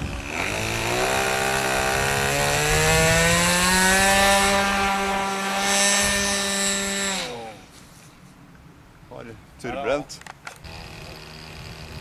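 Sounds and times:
model airplane motor running: 10.6 - 12.0.

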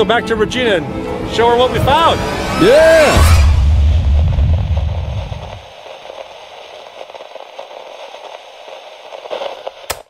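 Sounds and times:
deep bass: 0.4 - 5.6
static-like crackling noise: 3.2 - 10.0.

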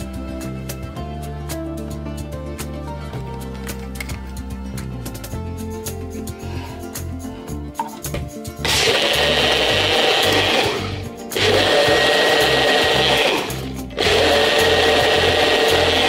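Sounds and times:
blender motor running: 8.6 - 16.0.

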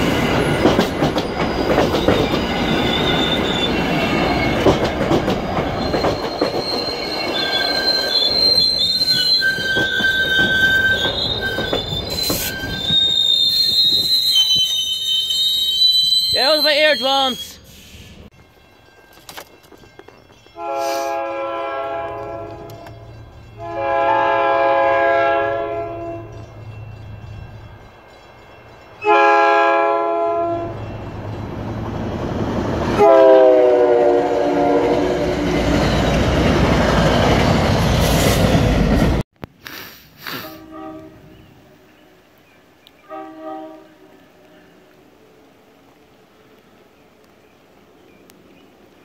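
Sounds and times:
rumble of passing train coaches: 0.0 - 39.2, 40.5 - 49.0
train horn blasts: 20.6 - 23.0, 23.6 - 26.4, 29.0 - 30.8, 33.0 - 35.4, 40.6 - 41.4, 43.0 - 44.6.

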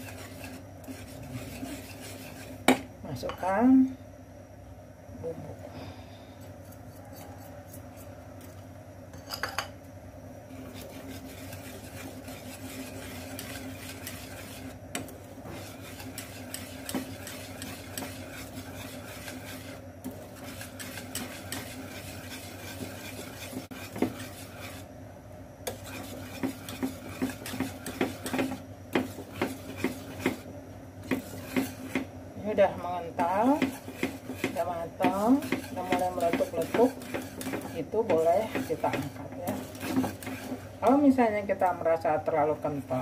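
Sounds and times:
whisk scraping metal pan: 0.0 - 2.8, 10.5 - 24.9, 25.6 - 32.1, 33.0 - 41.2
whisk tapping against pan: 10.8 - 24.8, 25.7 - 32.1, 33.2 - 40.6.

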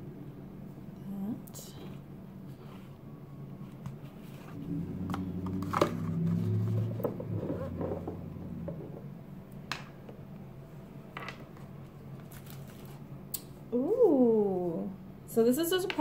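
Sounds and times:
low steady hum: 0.0 - 16.0
paper and cardboard rustling: 12.2 - 13.0.

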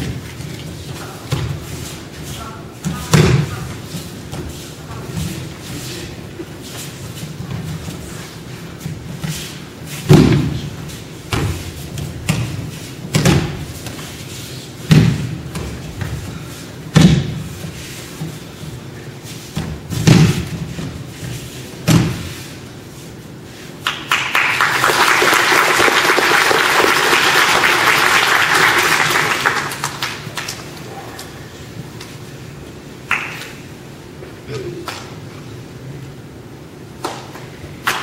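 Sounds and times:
bodies thudding on mats: 8.8 - 14.2, 14.8 - 16.3, 16.9 - 17.8, 19.5 - 21.1, 21.8 - 22.5
applause: 23.8 - 30.8, 33.1 - 33.6.

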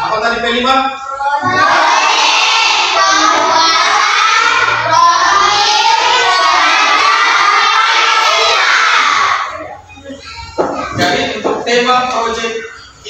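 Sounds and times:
children chanting in unison: 1.2 - 9.8.

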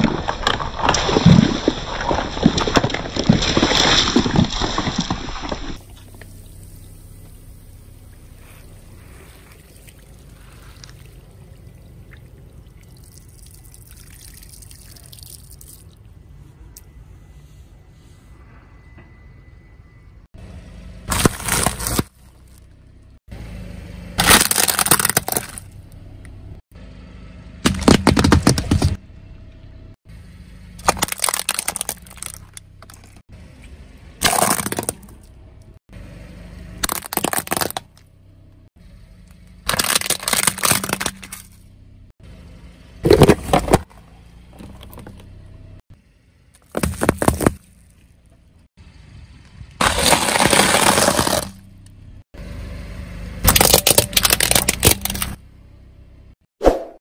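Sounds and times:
tyre crushing food packets: 0.0 - 5.8, 21.1 - 22.2, 24.2 - 25.6, 30.8 - 33.2, 34.2 - 35.1, 36.8 - 37.9, 39.7 - 41.5, 49.8 - 51.6, 53.5 - 55.4
low vehicle rumble: 0.0 - 56.5.

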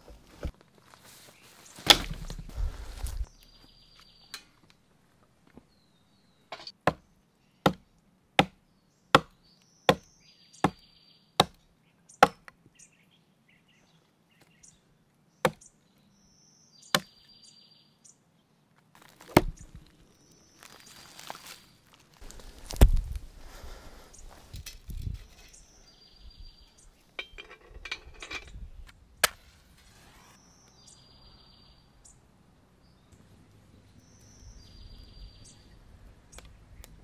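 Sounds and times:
axe chopping into log: 1.8 - 2.5, 9.2 - 10.0, 12.2 - 12.5, 19.2 - 19.8.

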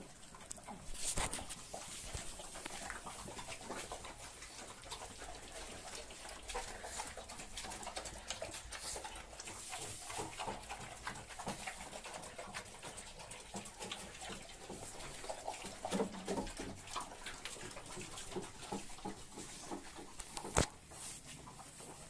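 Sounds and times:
dogs lapping and chewing: 0.0 - 22.0.

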